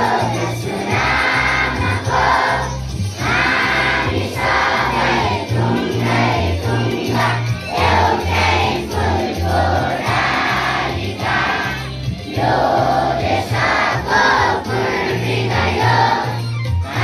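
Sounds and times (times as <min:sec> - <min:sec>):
children singing in unison: 0:00.0 - 0:17.0.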